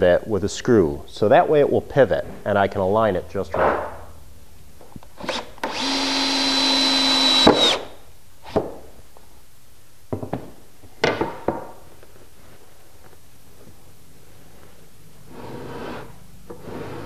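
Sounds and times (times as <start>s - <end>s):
cordless drill whining: 5.2s - 7.9s.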